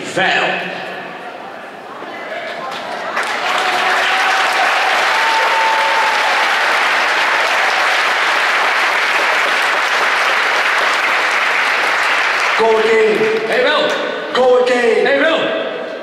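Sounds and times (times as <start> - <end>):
crowd applauding: 2.5 - 13.5.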